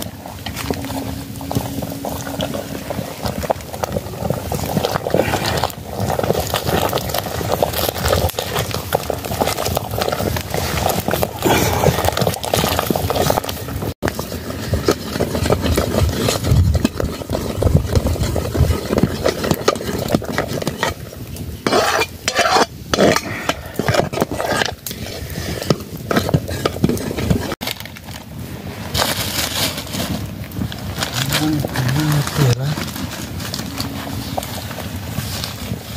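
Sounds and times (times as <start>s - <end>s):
ladle scraping metal pot: 0.0s - 27.9s.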